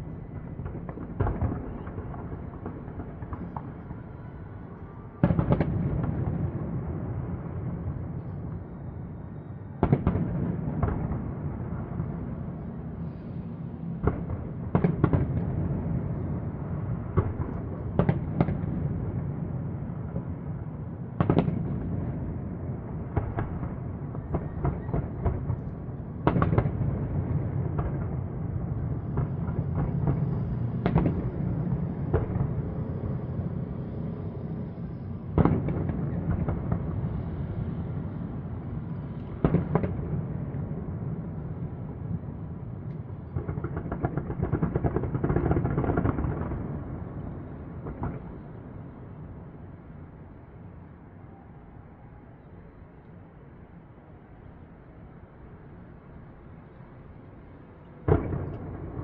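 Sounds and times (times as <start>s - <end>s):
fireworks booming: 0.2s - 4.2s, 5.1s - 8.5s, 9.7s - 42.2s, 43.0s - 48.8s, 58.0s - 59.0s.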